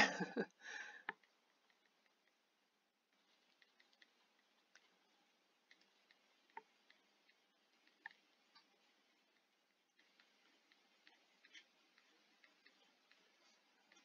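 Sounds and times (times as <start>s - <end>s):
stylus tapping on tablet: 5.6s - 14.0s.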